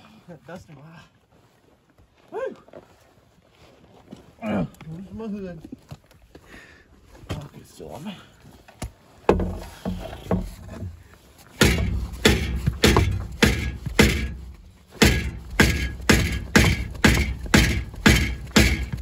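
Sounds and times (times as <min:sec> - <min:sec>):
rubber mallet striking metal: 0:11.6 - 0:19.0.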